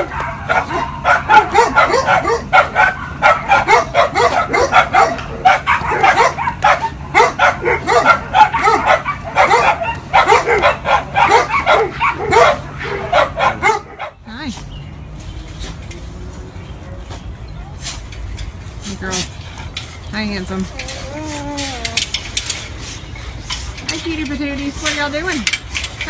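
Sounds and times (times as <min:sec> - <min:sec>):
dog yelping and whining: 0:00.0 - 0:14.1, 0:20.6 - 0:23.3.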